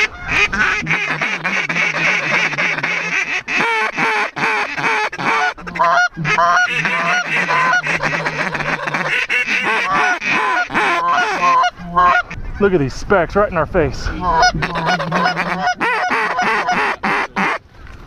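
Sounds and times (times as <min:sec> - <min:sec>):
geese honking: 0:00.0 - 0:12.4, 0:14.1 - 0:17.6.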